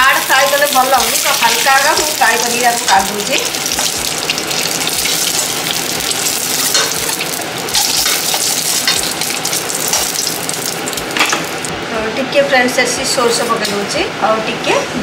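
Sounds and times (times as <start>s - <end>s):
hot oil sizzling: 0.0s - 11.8s.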